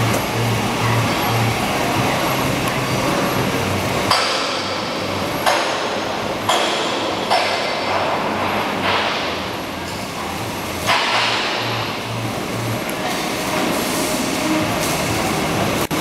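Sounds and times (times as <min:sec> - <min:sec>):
machinery hum: 0:00.0 - 0:16.0
sharp metallic knocks: 0:04.1 - 0:04.8, 0:05.4 - 0:09.4, 0:10.8 - 0:11.8.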